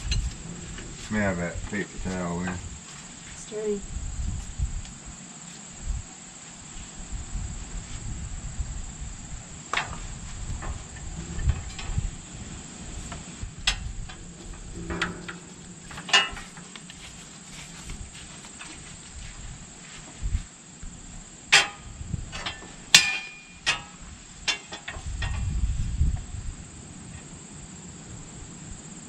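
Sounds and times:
metal clicks and knocks: 13.6 - 17.0, 21.5 - 25.5.

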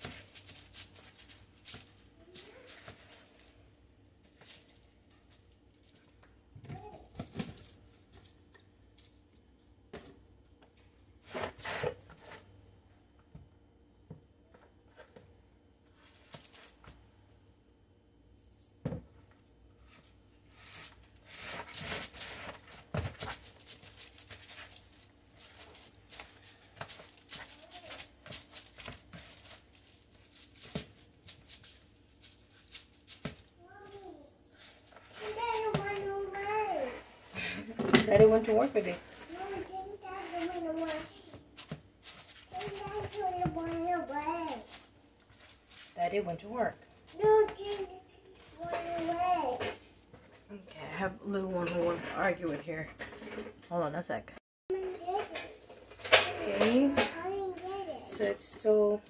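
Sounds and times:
hands kneading sticky dough: 0.0 - 9.2, 20.4 - 46.4.

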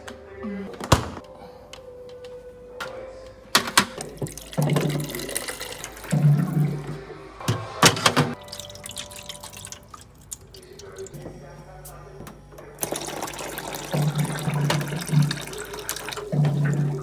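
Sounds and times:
water running into plastic scoop: 4.0 - 6.8, 8.4 - 11.1, 12.8 - 17.0
water trickling into trays: 4.0 - 6.9, 8.4 - 11.2, 12.8 - 17.0
low hum: 4.0 - 10.0.

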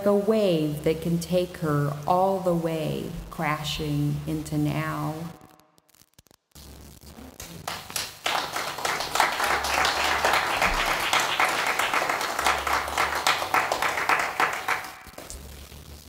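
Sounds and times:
audience applauding: 7.4 - 15.4.

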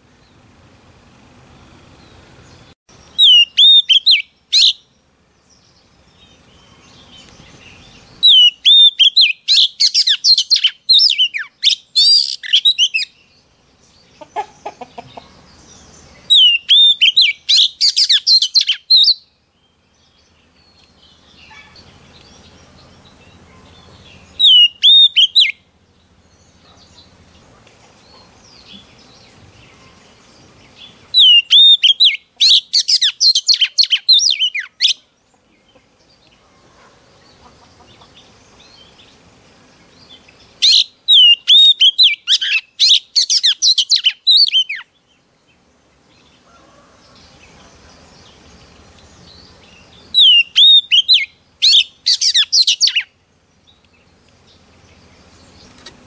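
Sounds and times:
bird singing whistled notes: 2.5 - 13.4, 15.6 - 25.6, 31.1 - 35.0, 40.0 - 45.0, 48.2 - 54.1.

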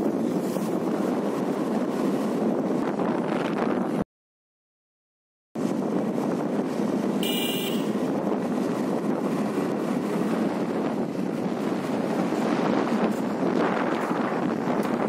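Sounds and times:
wind buffeting microphone: 0.0 - 4.0, 5.6 - 15.0
brief high-pitched tone: 7.2 - 8.0.

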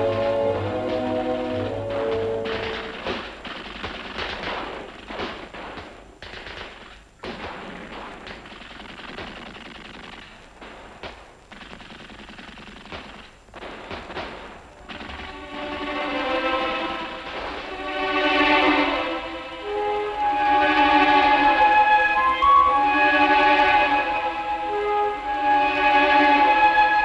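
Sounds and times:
gunfire bursts: 0.0 - 17.9.

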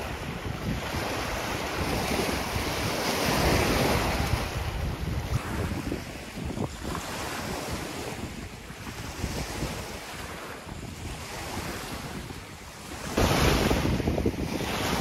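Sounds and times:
wind buffeting microphone: 0.0 - 15.0
waves washing onto pebbles: 9.1 - 15.0.

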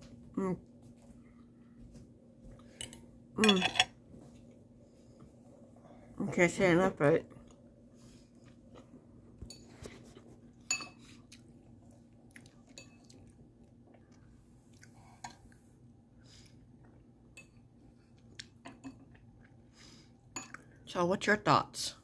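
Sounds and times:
faint chewing: 7.2 - 15.7.

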